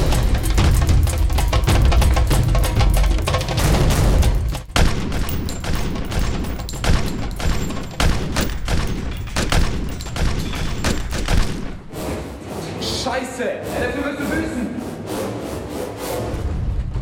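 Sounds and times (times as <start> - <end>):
handgun gunshots: 4.7 - 11.8.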